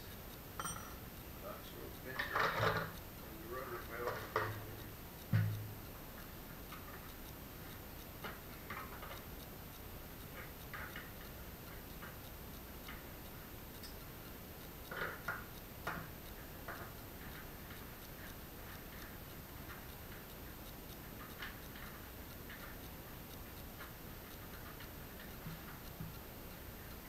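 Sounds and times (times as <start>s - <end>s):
tools clicking and tapping: 0.6s - 1.0s
dull knock: 5.3s - 5.8s.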